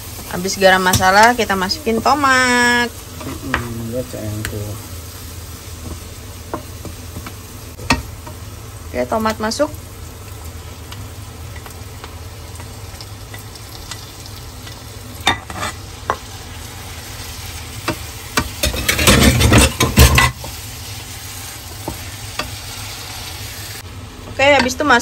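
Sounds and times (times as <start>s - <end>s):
tomatoes sizzling in a frying pan: 0.0s - 25.0s.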